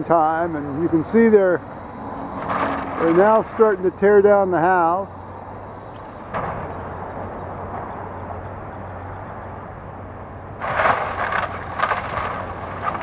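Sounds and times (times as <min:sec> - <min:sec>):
distant excavator running: 0:00.0 - 0:13.0
roof timber crashing: 0:02.4 - 0:04.4, 0:06.3 - 0:07.1, 0:10.6 - 0:13.0.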